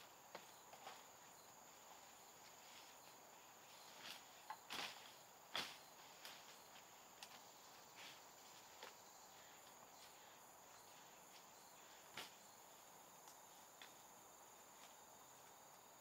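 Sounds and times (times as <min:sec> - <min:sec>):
insects chirring: 0:00.0 - 0:16.0.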